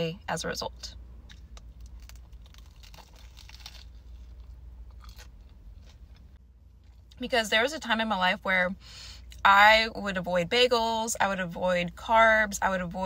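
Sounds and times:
low steady hum: 0.0 - 13.0
person chewing a sandwich: 1.2 - 7.2
soft crust crunches: 1.3 - 7.2.

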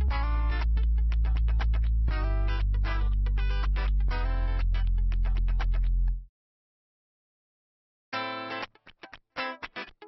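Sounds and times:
held bass note: 0.0 - 6.2
short plucked notes: 0.0 - 6.2.

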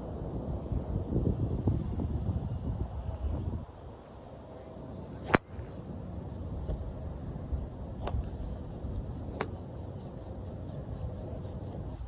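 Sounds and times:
wind rumble: 0.0 - 4.0, 5.0 - 12.0
golf ball struck by driver: 5.2 - 5.7.

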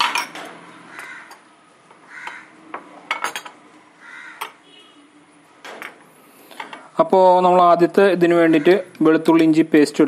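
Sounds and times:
spoons clinking on glass bowls: 0.0 - 0.4, 3.1 - 3.6.

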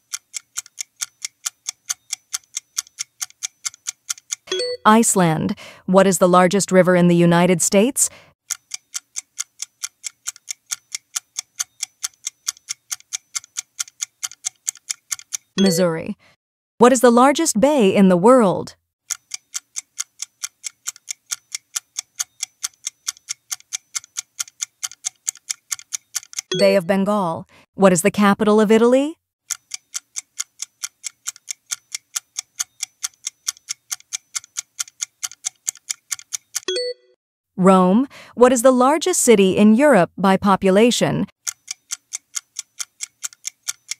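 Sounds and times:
clock-like timer ticking: 0.0 - 5.3, 8.4 - 16.0, 19.1 - 26.9, 29.5 - 36.9, 41.4 - 43.9
countdown timer ticking: 0.0 - 5.4, 15.3 - 16.1, 25.8 - 27.3.

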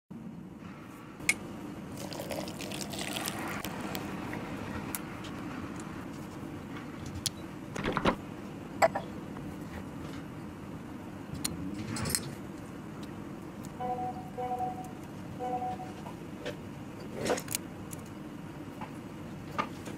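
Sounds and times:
milk trickling into glass: 1.9 - 4.0.

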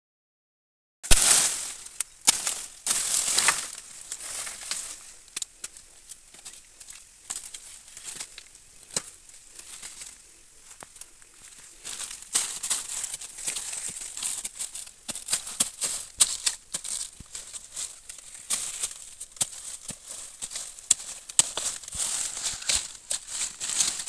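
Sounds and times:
dry bamboo leaves crackling: 1.1 - 24.0.

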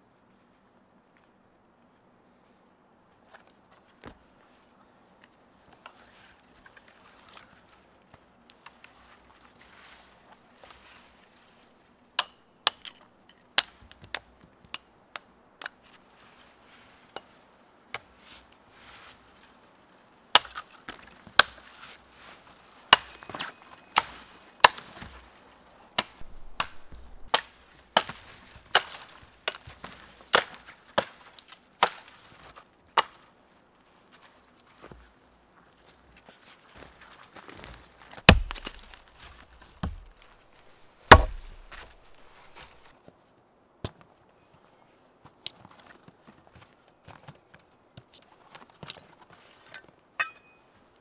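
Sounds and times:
blade chopping dry wooden pole: 26.0 - 29.7, 30.3 - 31.2, 38.2 - 40.3, 41.1 - 42.8.

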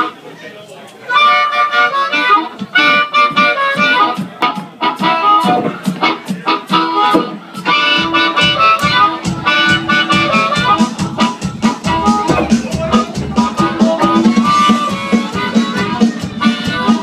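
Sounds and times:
blues harmonica: 1.1 - 17.0
electric blues band: 1.2 - 17.0.

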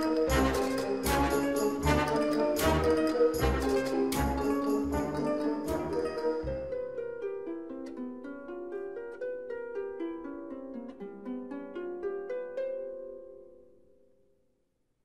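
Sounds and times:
plucked melody background music: 0.0 - 13.7.

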